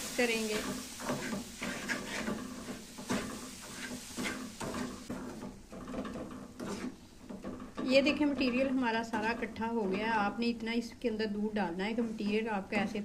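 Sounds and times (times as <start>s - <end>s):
wooden spatula scraping metal pan: 0.1s - 10.2s.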